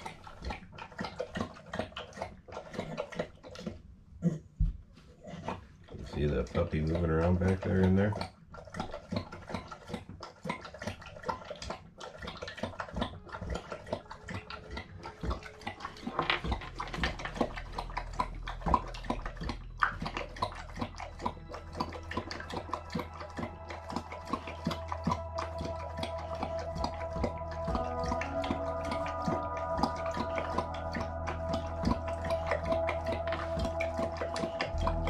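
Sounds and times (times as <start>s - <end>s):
dog lapping water from bowl: 0.0s - 4.4s, 5.2s - 35.0s.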